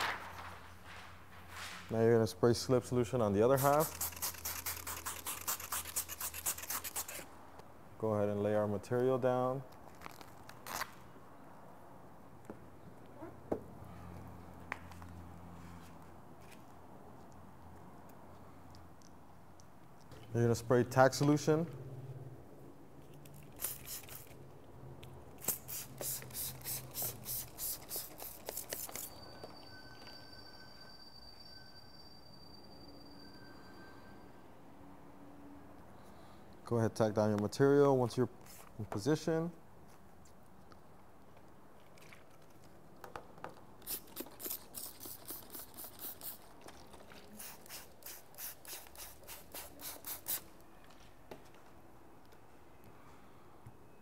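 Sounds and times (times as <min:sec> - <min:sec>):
spray bottle squirting: 0:03.6 - 0:07.2, 0:23.2 - 0:24.4, 0:25.4 - 0:29.1, 0:43.8 - 0:50.5.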